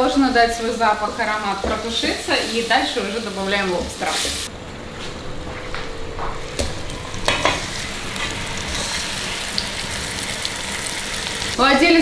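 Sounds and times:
lobster sizzling in butter: 0.0s - 4.5s, 6.4s - 11.7s.

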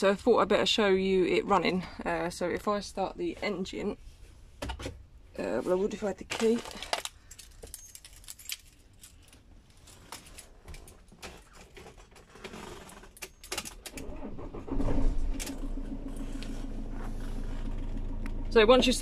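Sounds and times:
keys jangling: 7.2s - 9.4s
diesel engine starting and idling: 13.9s - 19.0s.

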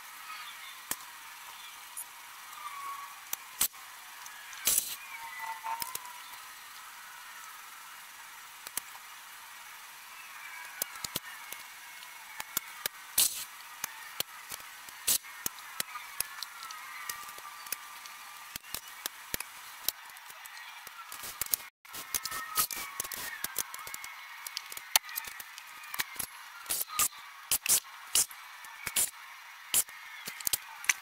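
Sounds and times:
steady hiss: 0.0s - 31.0s
vinyl film clicking and crackling: 2.5s - 9.4s, 10.2s - 31.0s.

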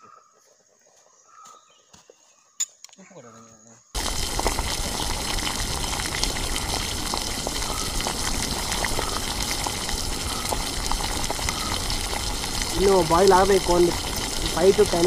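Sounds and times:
curry bubbling and popping: 4.0s - 15.0s.

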